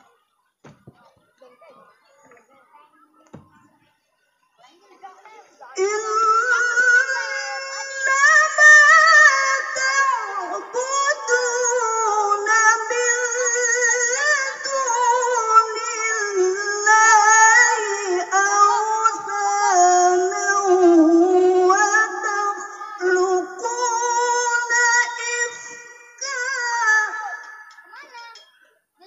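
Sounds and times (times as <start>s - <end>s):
woman reciting melodically: 0.0s - 4.0s, 4.6s - 27.8s.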